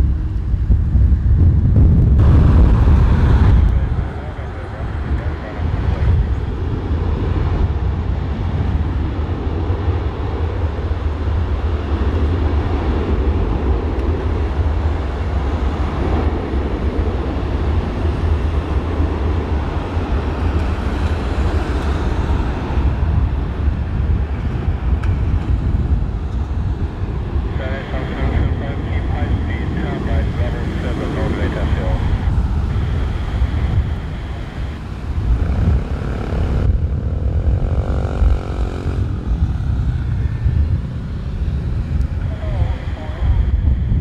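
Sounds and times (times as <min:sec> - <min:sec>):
jet engines rumbling: 0:00.0 - 0:44.0.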